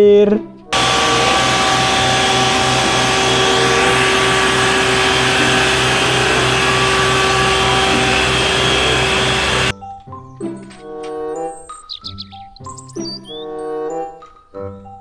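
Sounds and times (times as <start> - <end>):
low pulsing beat: 0.8 - 9.7
pump whine: 0.8 - 9.7
water cannon jet rushing: 0.8 - 9.7.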